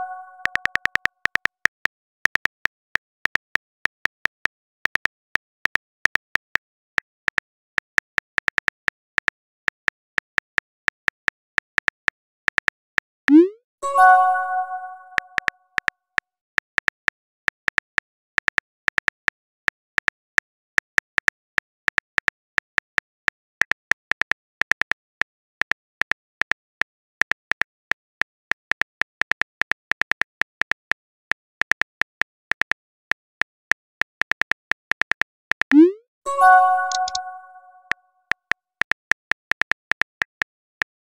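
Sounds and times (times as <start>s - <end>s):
phone keyboard tap clicks: 36.8s - 37.4s.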